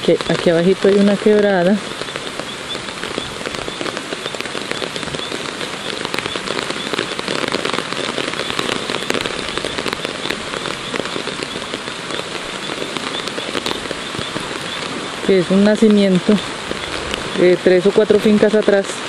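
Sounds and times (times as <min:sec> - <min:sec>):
water hissing with pattering crackles: 0:00.0 - 0:19.0.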